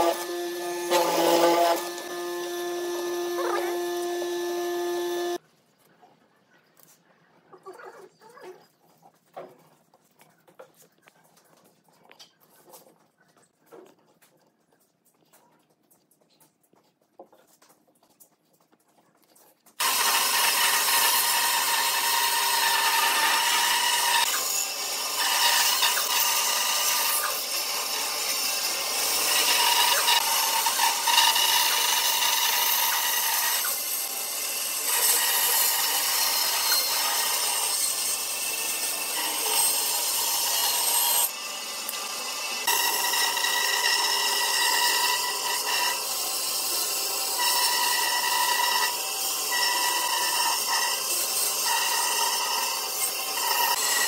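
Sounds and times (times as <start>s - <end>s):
band saw cutting wood: 0.0s - 5.4s, 19.8s - 54.0s.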